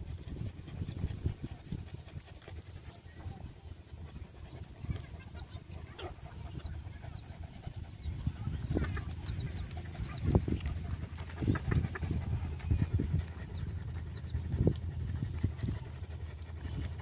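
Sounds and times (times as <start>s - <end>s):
puppies suckling: 0.0s - 17.0s
chickens clucking: 4.0s - 17.0s.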